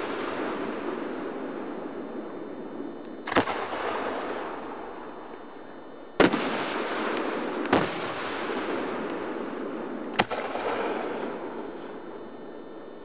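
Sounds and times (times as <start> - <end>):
firework booms with echo: 0.0 - 5.3, 6.2 - 12.2.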